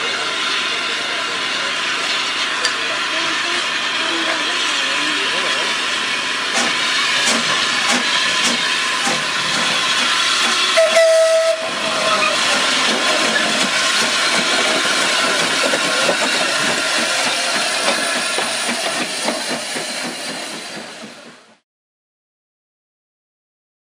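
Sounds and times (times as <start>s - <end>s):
steam locomotive hissing: 0.0s - 21.6s
steam whistle toot: 10.5s - 12.4s.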